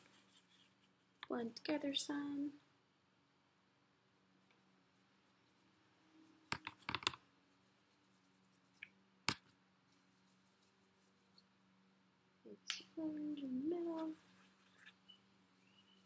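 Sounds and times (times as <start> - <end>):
faint steady hum: 0.0 - 16.0
paintbrush clicks and taps: 6.4 - 7.2, 8.7 - 9.6.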